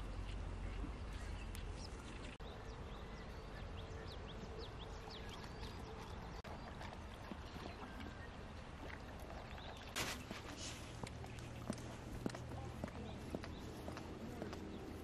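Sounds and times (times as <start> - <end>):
light wind: 0.0 - 15.0
flowing river water: 5.2 - 11.0.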